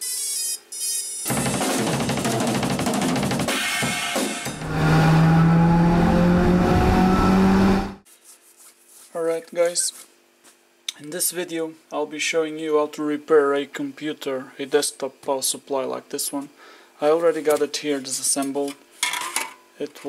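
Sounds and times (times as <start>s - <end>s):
fast drum and cymbal hits: 1.3s - 4.6s
low swell with rising tones: 4.6s - 8.0s.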